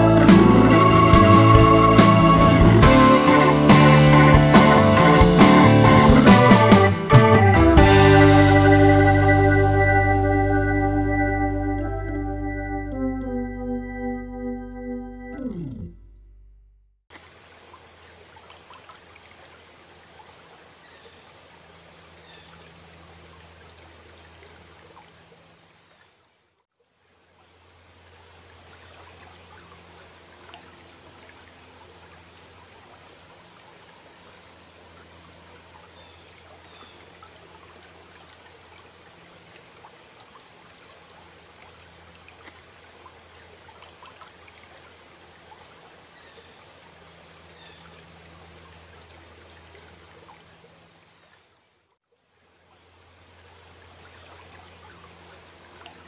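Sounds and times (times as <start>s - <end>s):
running water: 0.0s - 9.8s, 17.1s - 56.0s
low hum: 8.4s - 17.0s.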